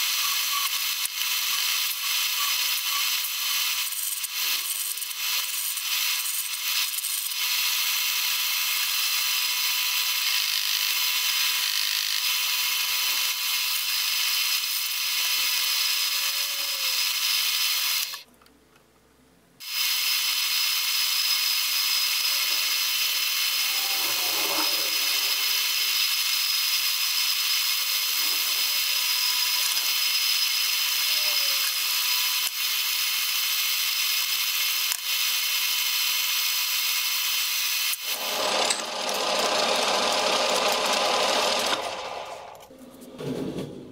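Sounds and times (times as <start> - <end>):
metal lathe humming: 21.7 - 31.0, 38.0 - 42.6.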